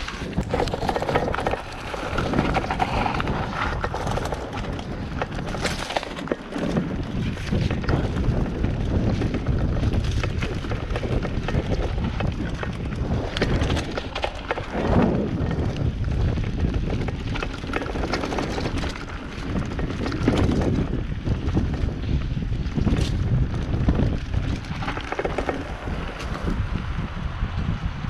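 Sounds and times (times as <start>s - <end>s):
bike rattling over bumps: 0.0s - 28.0s
bike tyres rolling on dirt: 0.0s - 28.0s
wind rumble on microphone: 0.0s - 28.0s.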